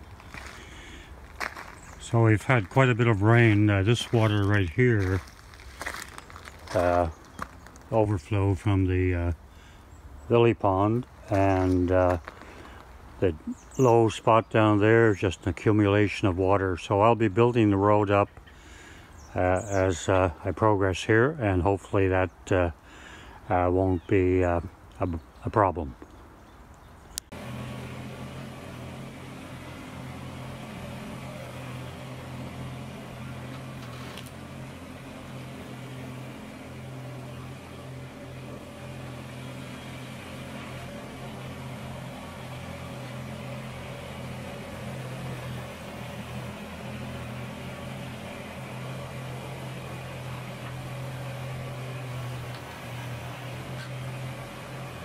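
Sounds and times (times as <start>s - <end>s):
tyres rolling over gravel: 0.0s - 8.8s, 10.6s - 13.6s, 27.3s - 55.0s
tractor diesel engine running: 0.0s - 24.6s, 27.2s - 55.0s.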